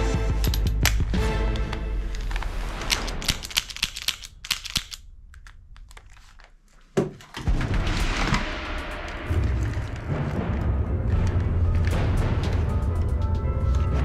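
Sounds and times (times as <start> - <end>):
plastic toy guns clicking: 0.4 - 6.6.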